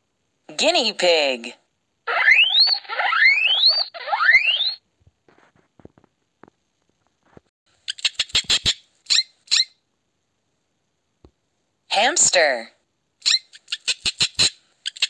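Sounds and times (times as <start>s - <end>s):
guinea pig wheeking: 2.1s - 4.8s
hamster squeaking: 2.1s - 4.8s, 7.9s - 9.8s, 13.2s - 15.0s.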